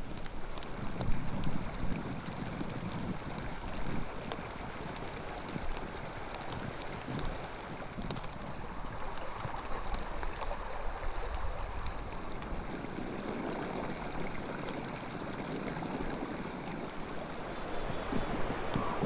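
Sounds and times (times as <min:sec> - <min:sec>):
faint ticks: 0:00.0 - 0:08.6
steady rushing noise: 0:16.8 - 0:19.0.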